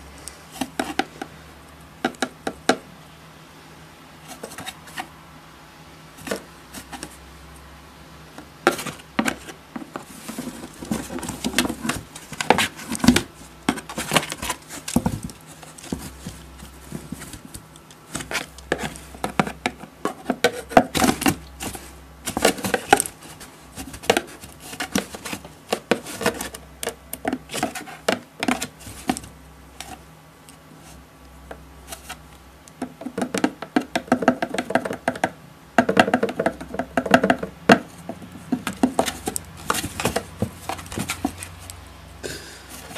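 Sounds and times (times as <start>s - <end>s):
stick knocking on cardboard: 2.0s - 2.8s, 18.1s - 23.1s, 23.8s - 29.2s, 32.8s - 41.4s
cat clawing cardboard box: 8.6s - 30.0s, 35.9s - 41.7s.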